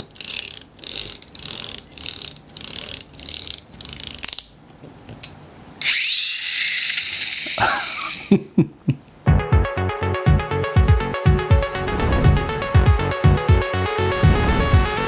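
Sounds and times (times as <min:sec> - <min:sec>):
rasping ratchet winding: 0:00.0 - 0:04.5, 0:05.8 - 0:08.2
toy car motor high whir: 0:05.8 - 0:08.3.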